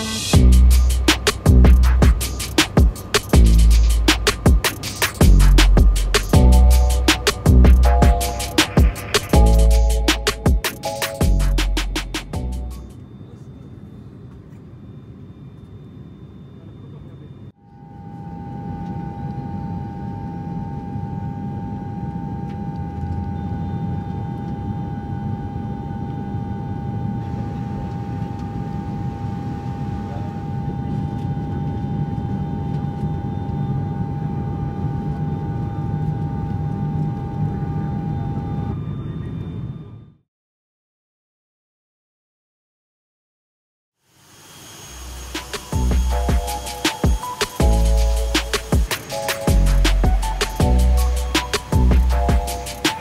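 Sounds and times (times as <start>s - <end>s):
droning engine whine: 0.0s - 40.2s, 44.1s - 53.0s
airliner cabin rumble: 16.6s - 39.9s.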